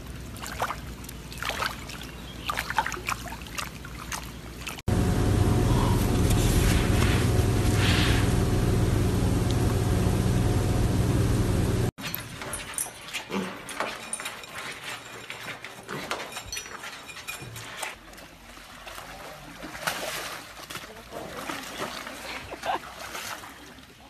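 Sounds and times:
loud steady hum: 4.9s - 11.9s.

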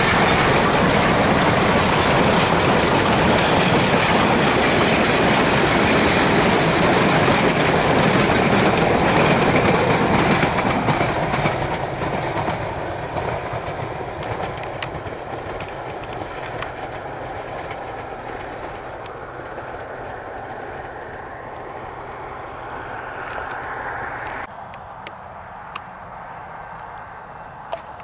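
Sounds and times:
train wheels rumbling: 0.0s - 24.5s
clicks over rail joints: 3.1s - 20.5s.

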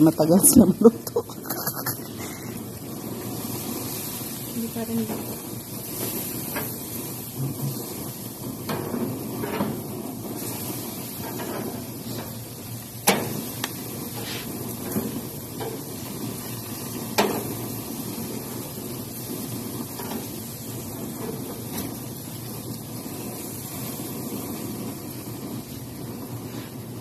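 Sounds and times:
chicken grilling hiss: 0.0s - 27.0s
grill gear clacking: 8.6s - 17.6s, 19.9s - 22.1s.

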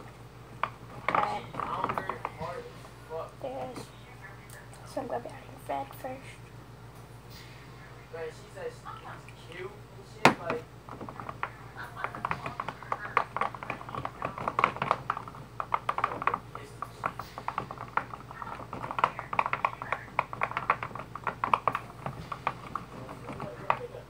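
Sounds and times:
low steady hum: 0.0s - 24.0s
stick stirring sticky mix: 0.6s - 3.7s, 10.4s - 24.0s.

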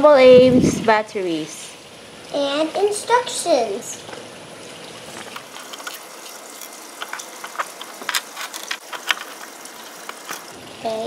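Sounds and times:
batteries clicking into compartment: 6.6s - 10.5s.

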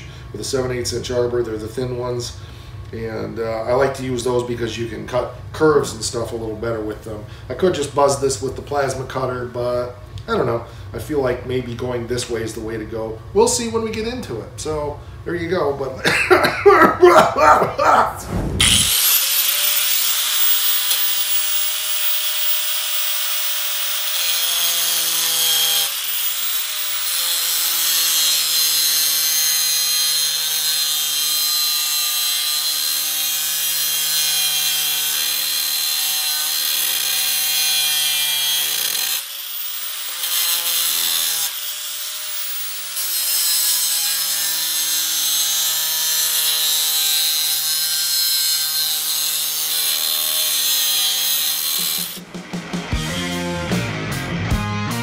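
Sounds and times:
angle grinder cutting sheet metal: 17.8s - 53.8s.

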